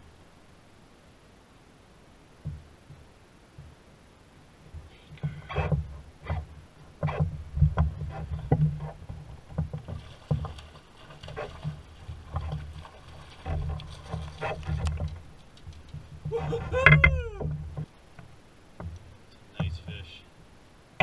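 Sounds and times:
water slapping against canoe hull: 4.7s - 19.9s.

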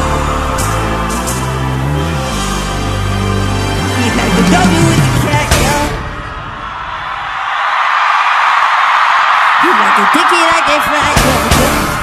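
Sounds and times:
instrumental music with low bass notes: 0.0s - 6.0s.

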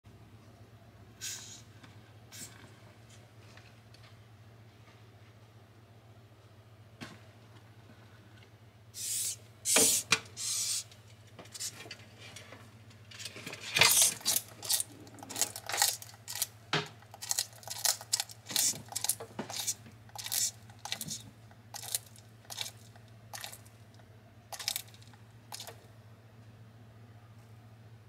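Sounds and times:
cockroach hissing: 1.2s - 1.7s, 9.0s - 10.9s, 18.5s - 21.2s
jaws crunching shell: 13.8s - 23.7s, 24.5s - 25.8s.

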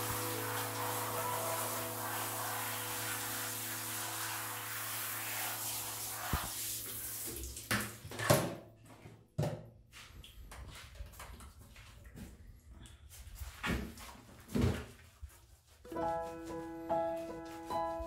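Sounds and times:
shower head spraying water: 0.0s - 7.7s.

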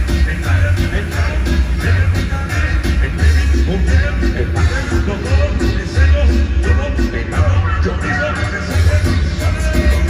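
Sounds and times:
heavy bass pulsing: 0.0s - 10.0s
loud dance music: 0.0s - 10.0s.

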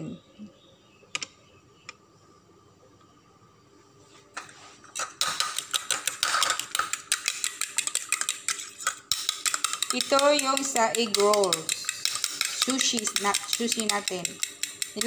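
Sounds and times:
fork beating egg in plastic bowl: 4.9s - 15.0s.

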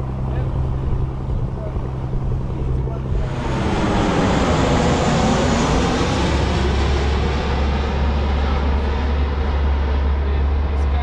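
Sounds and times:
boat engine drone: 0.0s - 11.0s
jet airliner roaring overhead: 0.0s - 11.0s.

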